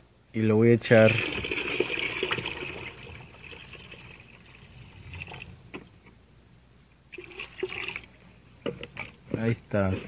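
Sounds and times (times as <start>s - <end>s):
water pouring into tub: 0.9s - 5.6s, 7.1s - 8.2s.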